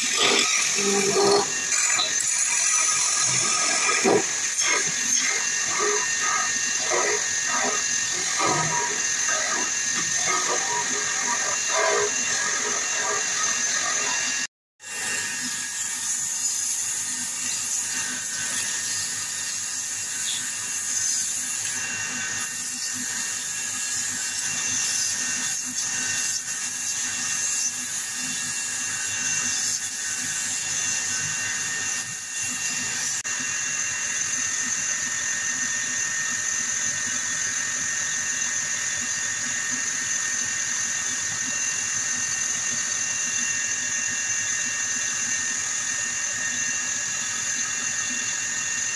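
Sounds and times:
sandpaper hissing on spinning wood: 0.0 - 33.3
bench lathe whining: 0.0 - 48.9.

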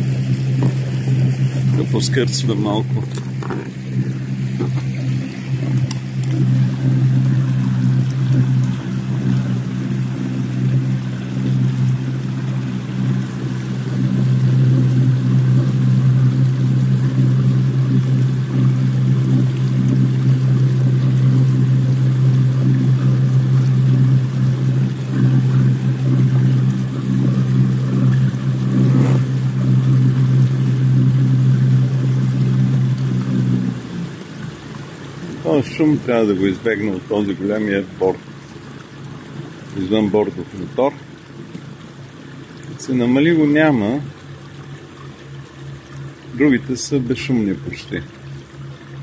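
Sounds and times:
outboard motor droning: 0.0 - 49.0
water rushing past hull: 0.0 - 49.0.

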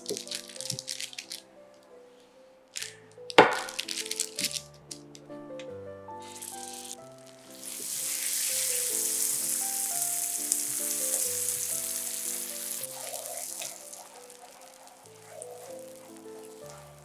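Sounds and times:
butter sizzling in a pan: 6.2 - 17.0.

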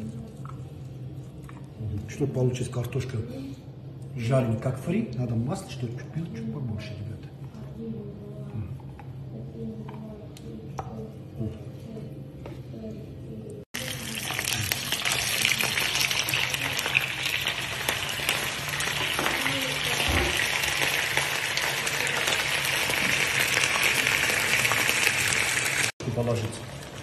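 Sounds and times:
potatoes sizzling in hot oil: 13.8 - 27.0.

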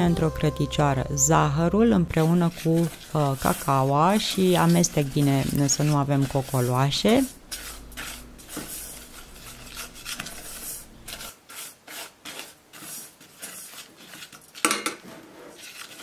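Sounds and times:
spatula scraping sugar in saucepan: 1.3 - 16.0.

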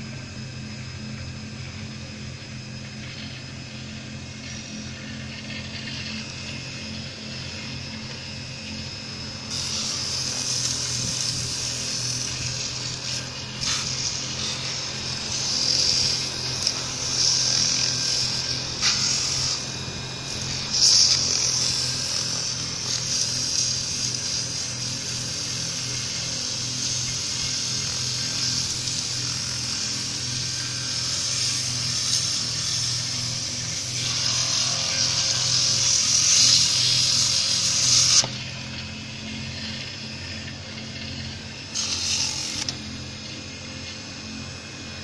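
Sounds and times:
lathe motor humming: 0.0 - 45.0
sandpaper hissing on turning wood: 9.5 - 38.4, 41.7 - 43.0.

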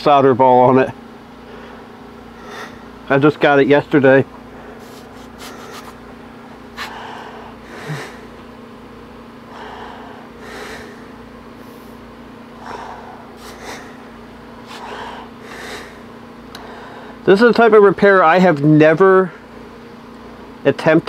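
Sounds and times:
person breathing: 1.4 - 2.9, 4.5 - 6.0, 6.8 - 8.4, 9.5 - 12.0, 12.6 - 17.2.

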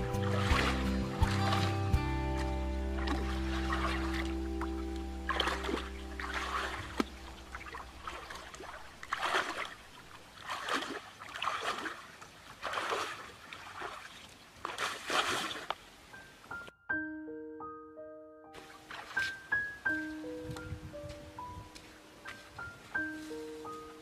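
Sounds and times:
muddy water splashing: 0.0 - 16.0, 18.6 - 20.3.

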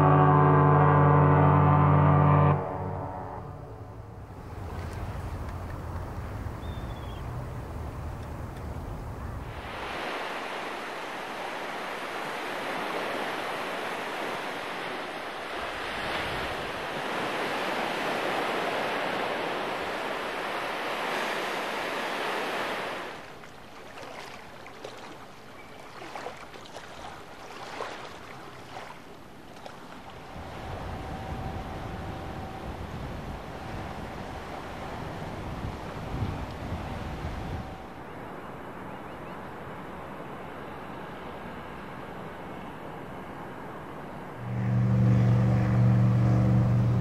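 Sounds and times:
waves breaking on a beach: 4.3 - 47.0
faint clicks and splashes: 23.4 - 30.2.

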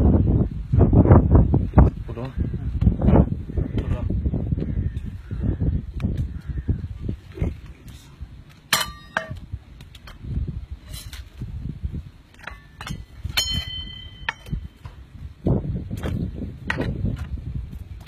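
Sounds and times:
ringing metallic strikes: 12.5 - 14.8.

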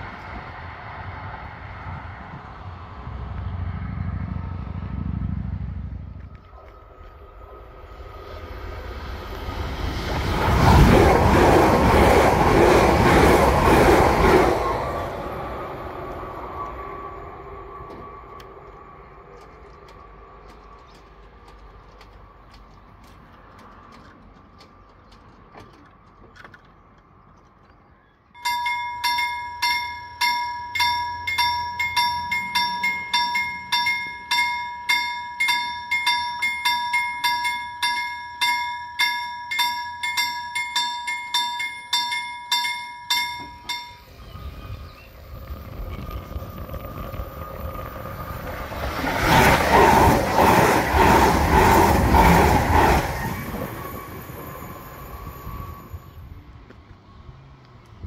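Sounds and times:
electric train passing: 0.0 - 24.0, 28.4 - 58.0
level crossing warning bell: 28.4 - 44.6.

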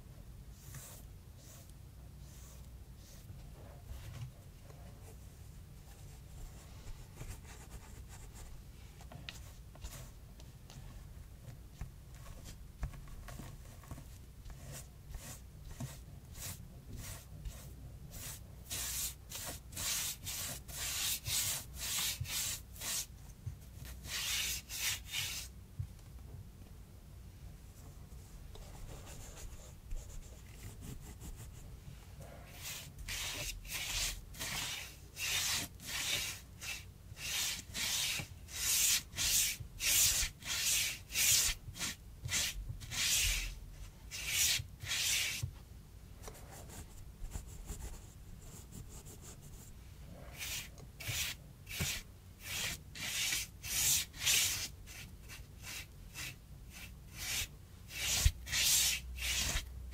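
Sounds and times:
paintbrush scraping cardboard: 0.5 - 4.2, 12.2 - 23.1, 23.8 - 25.6, 28.6 - 45.5, 46.2 - 59.7.

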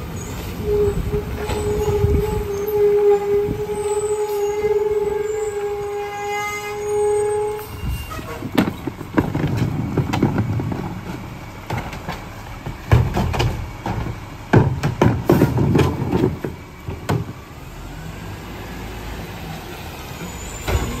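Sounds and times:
high-pitched packer squeal: 0.2 - 8.5
truck engine idling: 7.1 - 21.0
trash thudding into hopper: 8.4 - 17.4.

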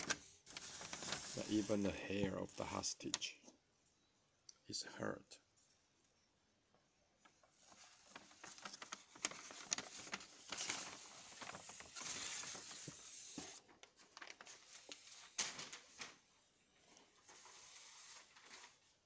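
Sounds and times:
paper target rustling and crackling: 0.0 - 3.4, 7.2 - 16.4, 17.2 - 19.0.

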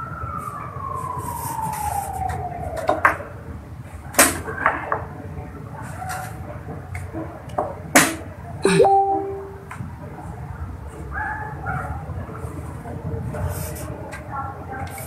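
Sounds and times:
tone sliding down in pitch: 8.6 - 9.7.

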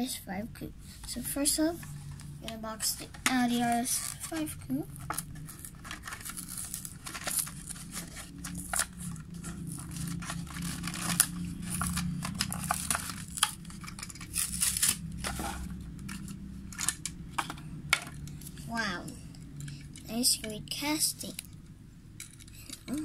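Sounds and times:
low steady hum: 0.0 - 23.0
blister pack tearing open: 5.0 - 17.1.

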